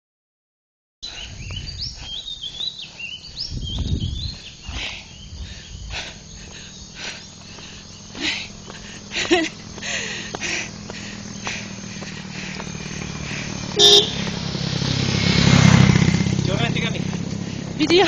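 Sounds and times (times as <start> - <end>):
birds chirping: 1.0 - 18.0
low microphone rumble: 3.3 - 10.2.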